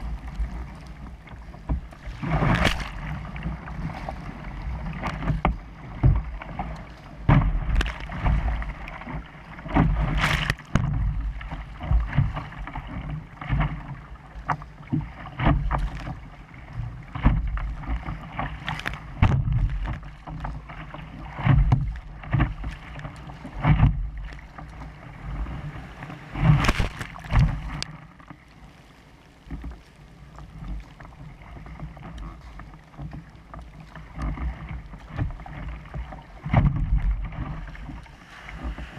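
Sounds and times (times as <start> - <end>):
wind rumble on microphone: 0.0 - 28.0, 29.2 - 38.9
paddle strokes splashing: 0.0 - 38.9
water splashing against kayak hull: 0.0 - 38.9.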